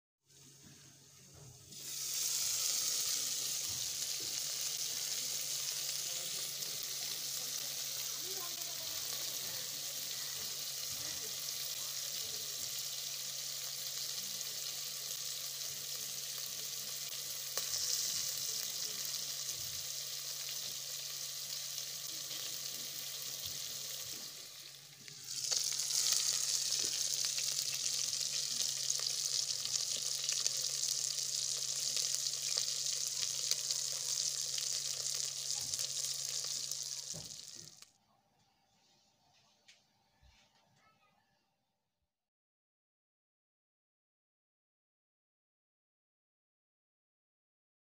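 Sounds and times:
fish sizzling in oil: 0.3 - 37.9.

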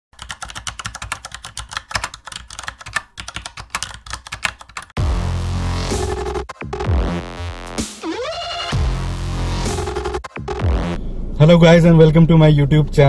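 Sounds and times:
electronic music with heavy bass: 5.0 - 11.0.

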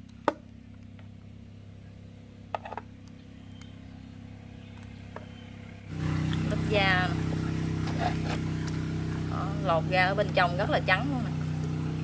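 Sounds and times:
low hum: 0.0 - 12.0.

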